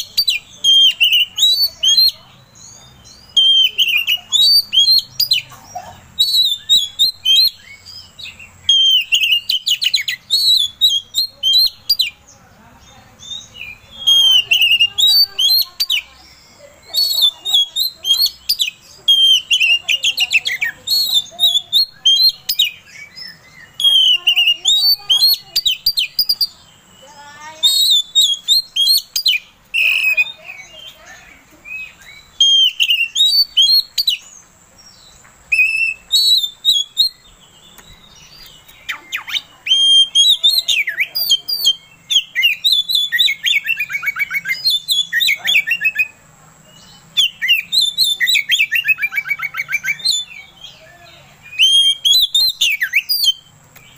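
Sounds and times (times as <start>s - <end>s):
magpie-robin singing: 0.0s - 53.9s.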